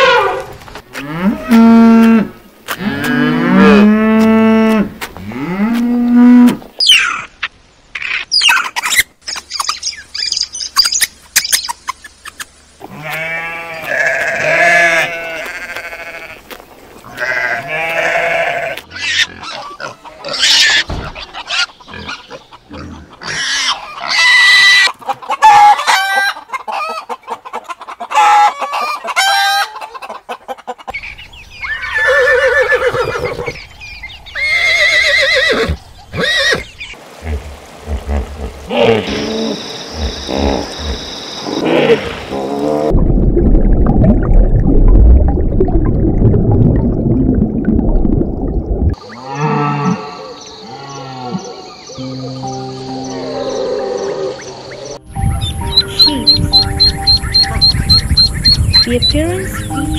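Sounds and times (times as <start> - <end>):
sheep bleating: 12.9 - 16.4, 17.1 - 18.8
chickens clucking: 19.1 - 31.0, 51.3 - 59.9.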